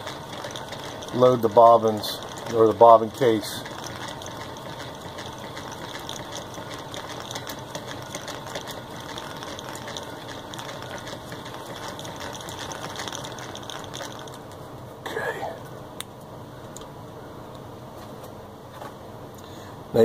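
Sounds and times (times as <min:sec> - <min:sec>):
sewing machine ticking: 0:00.0 - 0:14.4.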